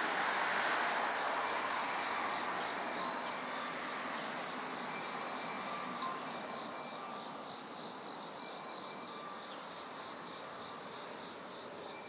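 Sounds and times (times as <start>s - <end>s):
road traffic hiss: 0.0s - 8.4s.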